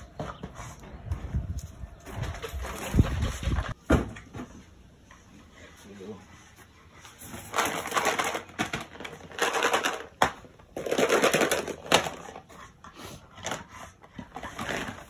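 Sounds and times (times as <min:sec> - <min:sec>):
dry kibble rattling in plastic bins: 0:07.4 - 0:12.4.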